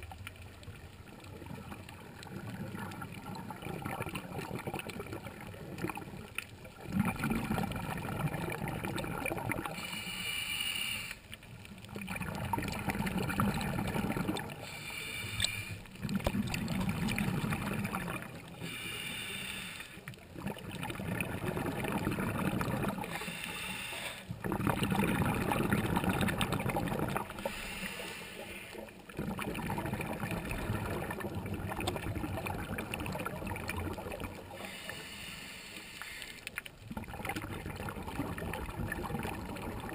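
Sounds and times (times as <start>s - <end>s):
bubbling exhaled air: 1.1s - 11.2s, 11.9s - 39.9s
diver inhaling through regulator: 9.7s - 11.3s, 14.5s - 15.9s, 18.6s - 20.1s, 23.0s - 24.3s, 27.2s - 29.0s, 34.5s - 36.6s.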